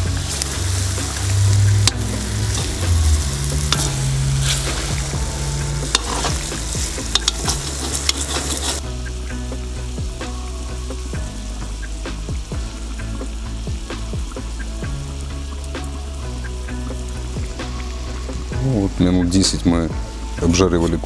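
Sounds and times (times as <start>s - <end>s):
metal skimmer scraping pot: 0.0s - 8.9s
chicken sizzling in butter: 0.0s - 21.0s.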